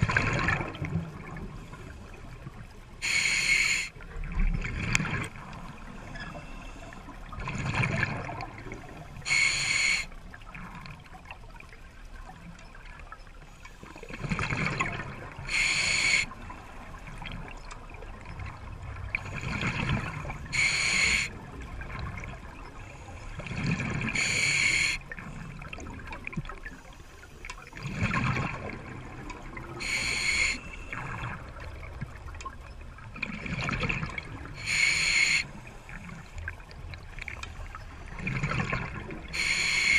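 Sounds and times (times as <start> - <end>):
regulator hissing on inhale: 3.0 - 3.9, 9.2 - 10.1, 15.5 - 16.3, 20.5 - 21.3, 24.2 - 25.0, 29.8 - 31.0, 34.6 - 36.4, 39.3 - 39.9.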